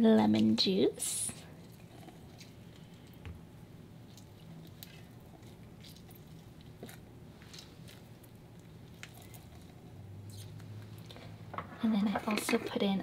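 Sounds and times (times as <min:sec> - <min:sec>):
low steady hum: 0:00.0 - 0:13.0
juice dripping: 0:01.5 - 0:11.4
wet squishes of lemons squeezed: 0:03.9 - 0:11.4.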